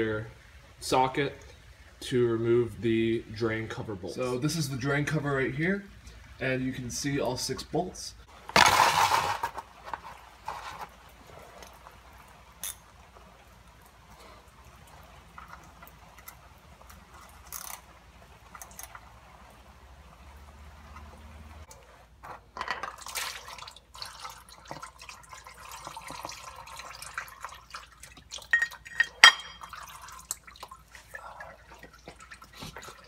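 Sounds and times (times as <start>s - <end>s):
oil dripping: 9.5s - 33.0s
oil pouring into pan: 22.9s - 30.9s.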